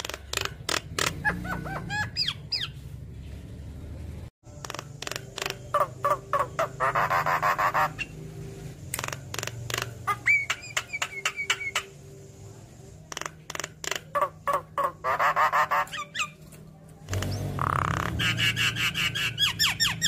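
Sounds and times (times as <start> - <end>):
myna bird singing: 0.0 - 3.6, 4.5 - 12.1, 13.1 - 20.0.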